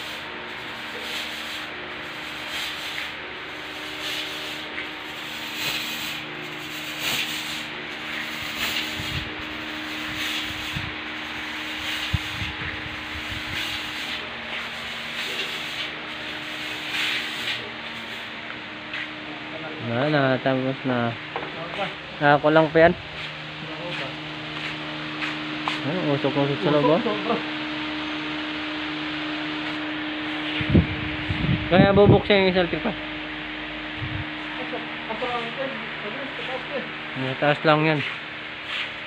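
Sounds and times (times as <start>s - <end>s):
fogger hissing: 0.0s - 19.2s
low steady hum: 17.6s - 38.6s.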